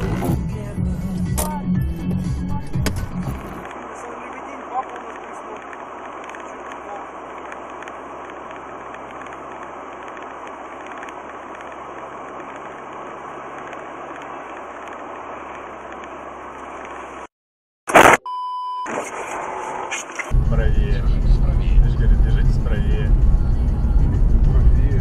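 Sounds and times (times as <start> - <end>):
road and tyre noise: 0.0 - 17.3, 18.8 - 25.0
car crash: 17.9 - 18.2, 18.8 - 23.1
short electronic beep: 17.9 - 19.2.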